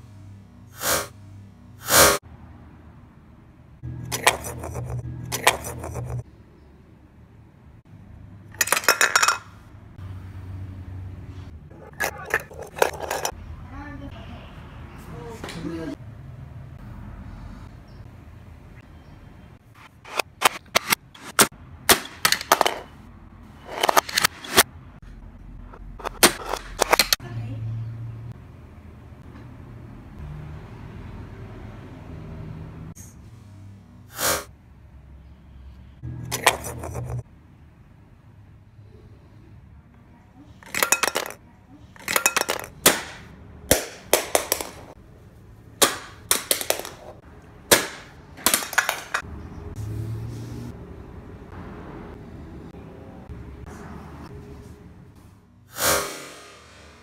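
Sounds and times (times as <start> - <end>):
toy figures knocking: 8.6 - 9.4, 11.9 - 13.4, 21.9 - 22.9, 40.6 - 41.4, 42.0 - 45.0, 45.8 - 49.2.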